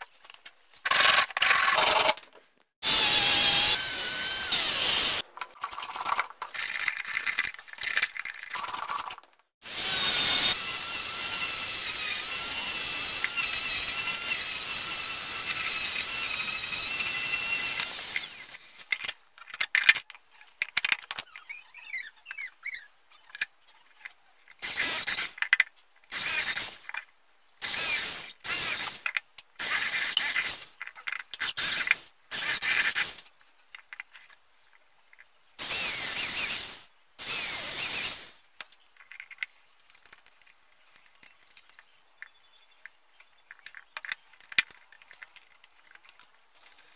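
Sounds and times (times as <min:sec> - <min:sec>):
angle grinder sanding wood: 0:02.8 - 0:05.2, 0:09.6 - 0:18.6
electric drill drilling into wood: 0:02.8 - 0:05.2, 0:09.6 - 0:18.8, 0:26.2 - 0:26.8, 0:27.6 - 0:29.0, 0:35.6 - 0:38.4.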